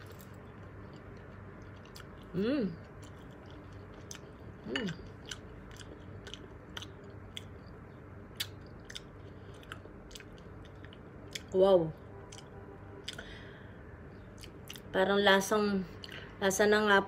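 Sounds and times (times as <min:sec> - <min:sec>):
person chewing food: 0:00.0 - 0:11.5, 0:12.3 - 0:13.3, 0:14.2 - 0:14.9.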